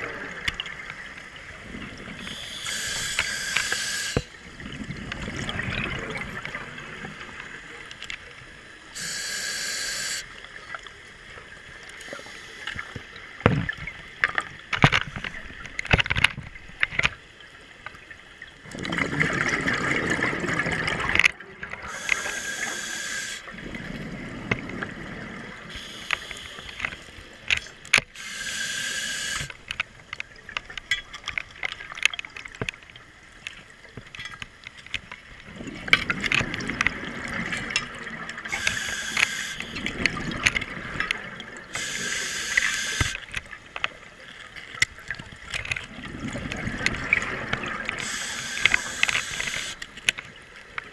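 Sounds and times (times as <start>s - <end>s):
hissing regulator inhalations: 2.2s - 4.3s, 9.0s - 10.3s, 12.0s - 13.0s, 21.8s - 23.5s, 25.7s - 29.6s, 38.5s - 39.8s, 41.7s - 43.2s, 48.0s - 49.8s
rumbling exhaled bubbles: 4.4s - 7.5s, 18.6s - 22.0s, 23.5s - 25.8s, 35.4s - 38.6s, 39.6s - 41.8s, 45.0s - 49.7s
sharp clicks: 47.9s - 50.2s.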